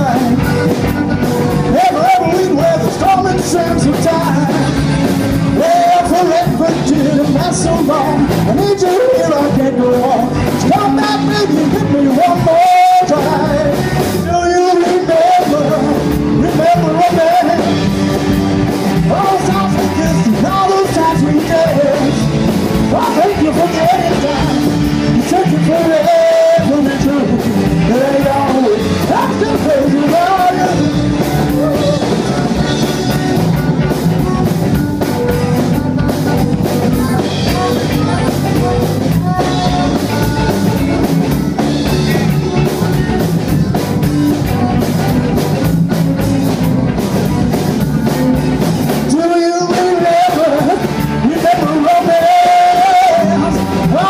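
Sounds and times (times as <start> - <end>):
bending lead guitar line: 0.0 - 54.0
rock band playing: 0.0 - 54.0.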